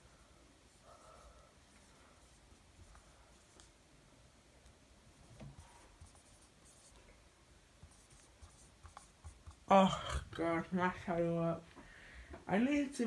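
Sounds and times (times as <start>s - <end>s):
marker scratching on whiteboard: 0.7s - 3.7s, 5.4s - 7.0s, 7.8s - 9.8s.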